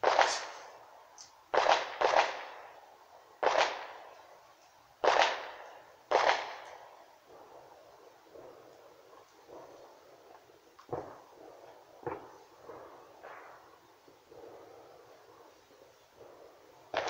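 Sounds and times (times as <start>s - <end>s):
firecracker bangs: 0.0s - 0.8s, 1.5s - 2.6s, 3.4s - 4.0s, 5.0s - 7.4s, 8.5s - 15.4s.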